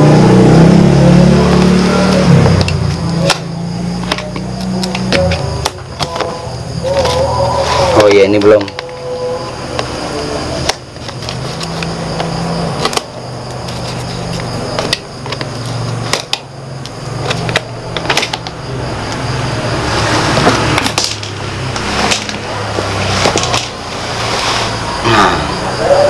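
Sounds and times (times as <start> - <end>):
plastic lid rustling scrape: 21.9 - 24.9.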